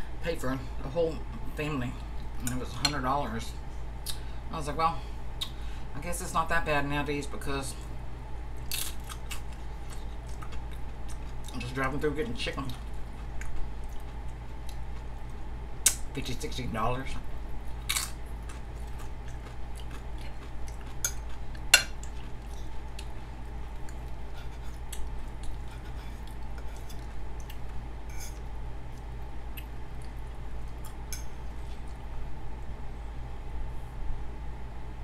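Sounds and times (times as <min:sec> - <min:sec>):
steady low hum: 0:00.0 - 0:35.0
crunchy chip chewing: 0:08.6 - 0:11.6, 0:17.7 - 0:27.8
fork scraping on a plate: 0:28.1 - 0:28.4.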